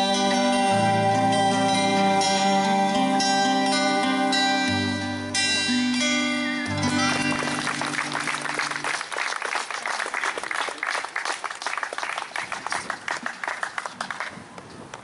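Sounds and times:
acoustic guitar chord ringing: 0.0s - 8.9s
crowd clapping: 6.7s - 15.0s.

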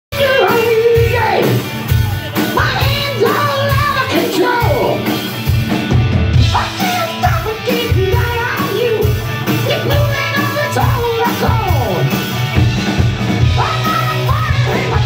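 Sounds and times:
drum kit: 0.1s - 15.0s
electric guitar: 0.1s - 15.0s
man singing into microphone: 2.6s - 4.7s, 6.5s - 11.7s, 13.6s - 15.0s.

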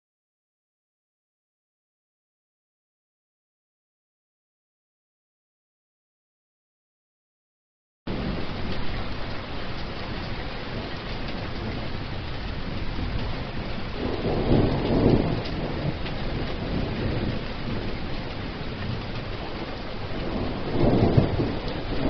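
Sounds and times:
heavy rain hissing: 8.1s - 22.0s
low thunder rumble: 8.1s - 22.0s.

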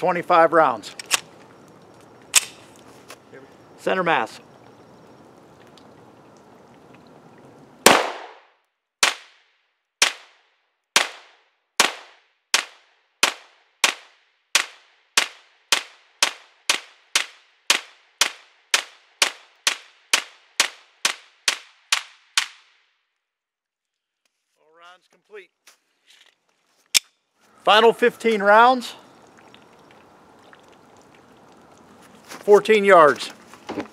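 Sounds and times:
pistol shots: 7.8s - 9.4s, 10.0s - 10.4s, 11.0s - 22.6s.

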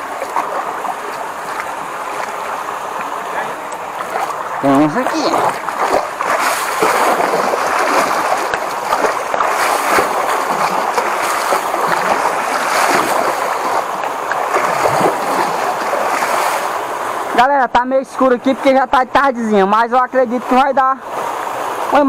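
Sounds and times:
pole splashing muddy water: 0.0s - 16.8s.

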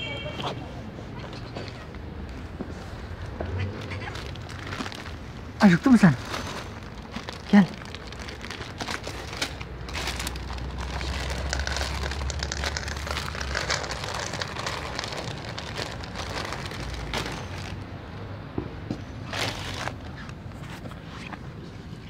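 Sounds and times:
kibble rattling and crunching: 3.7s - 17.8s
plastic bag crinkling: 3.8s - 17.8s, 19.2s - 20.4s.

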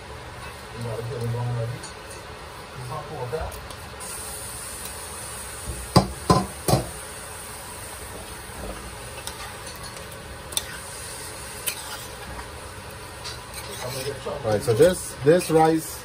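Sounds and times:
stirring rice in a pot: 13.5s - 15.0s.

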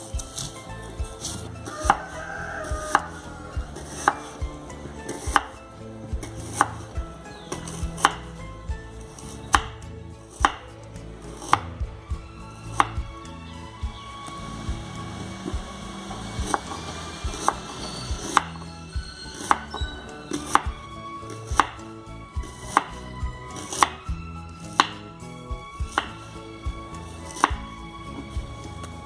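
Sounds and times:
knife slicing onion on board: 3.8s - 4.3s, 5.1s - 5.6s, 6.2s - 6.9s, 7.5s - 8.2s, 9.2s - 10.7s, 21.4s - 21.8s, 22.5s - 23.0s, 24.7s - 25.0s, 25.8s - 26.2s, 27.3s - 27.7s.

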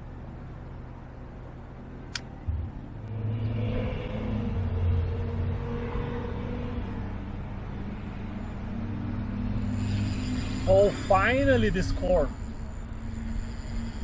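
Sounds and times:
engine drone: 8.5s - 14.0s.

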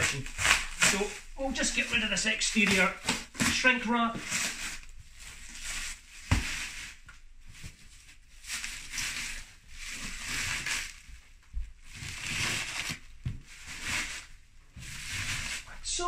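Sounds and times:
shrink wrap tearing and crackling: 0.0s - 7.0s, 8.4s - 11.1s, 11.8s - 14.4s.

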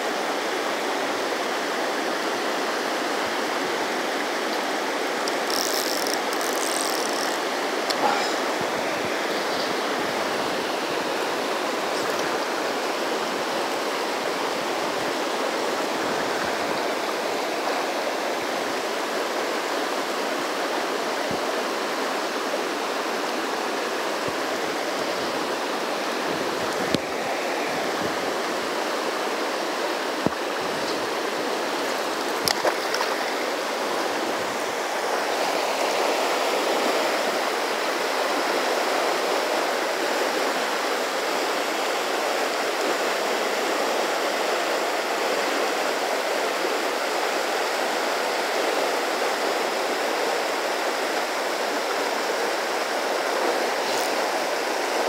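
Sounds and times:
water rushing over rocks: 0.0s - 55.0s.

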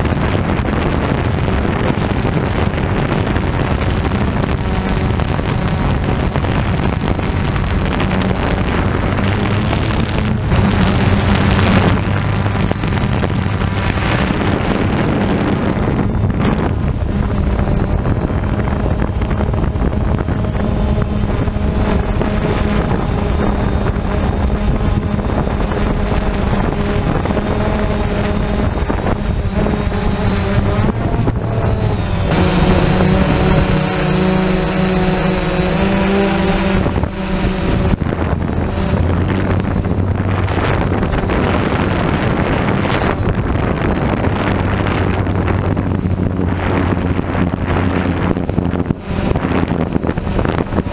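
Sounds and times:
drone propellers buzzing: 0.0s - 50.9s
wind noise: 0.0s - 50.9s.

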